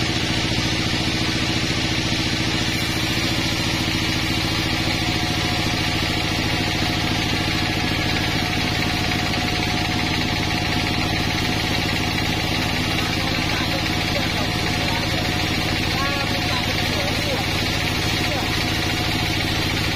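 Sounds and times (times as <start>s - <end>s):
saw blade hissing through wood: 0.0s - 13.2s
band saw machine drone: 0.0s - 19.9s.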